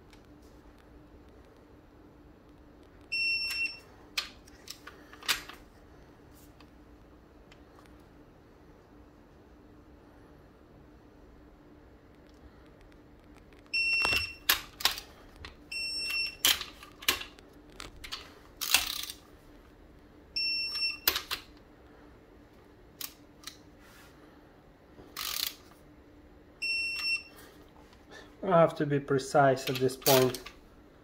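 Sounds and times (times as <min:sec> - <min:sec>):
short high-pitched beeps: 0:03.1 - 0:03.8, 0:26.6 - 0:27.3
ratchet clicking: 0:18.6 - 0:19.2, 0:25.2 - 0:25.6.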